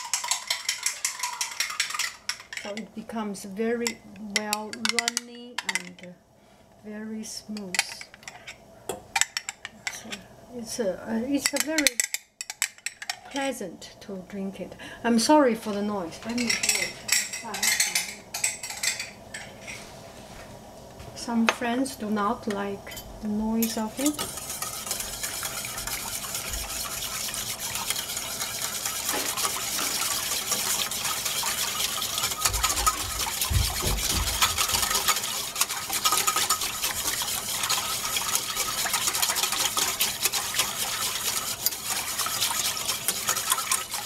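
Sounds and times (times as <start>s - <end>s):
metal whisk scraping saucepan: 0.0s - 2.9s, 7.6s - 8.6s, 23.6s - 44.0s
liquid sloshing: 23.9s - 44.0s.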